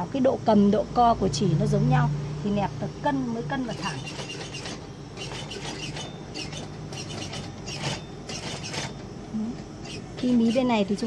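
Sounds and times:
sewing machine humming: 3.3 - 11.0.

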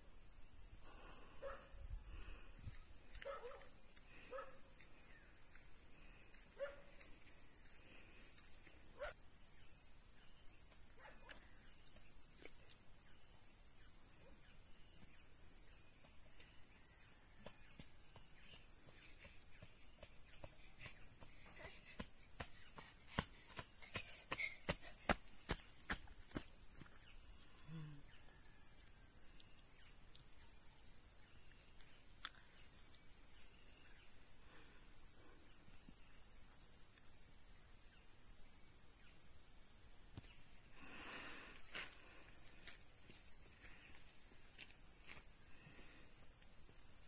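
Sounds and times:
insects droning: 0.0 - 47.0
dog barking: 1.4 - 1.8, 3.2 - 3.7, 4.3 - 4.6, 6.6 - 6.9, 9.0 - 9.2, 11.0 - 11.4
footsteps on dirt path: 17.4 - 27.1, 41.7 - 45.3.

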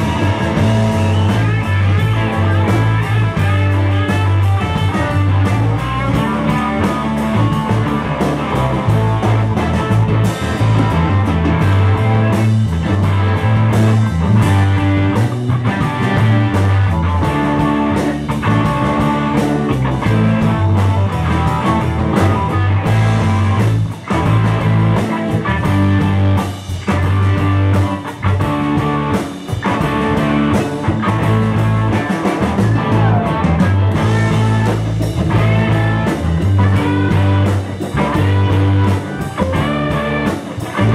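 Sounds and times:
bass line: 0.0 - 40.9
drums: 0.0 - 40.9
electric guitars: 0.0 - 40.9
keyboard: 0.0 - 40.9.

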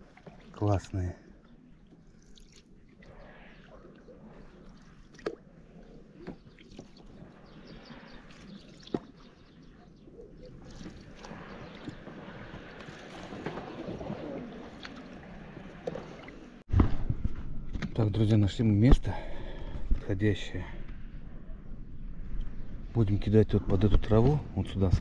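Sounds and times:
oars splashing and dripping: 0.0 - 16.6.

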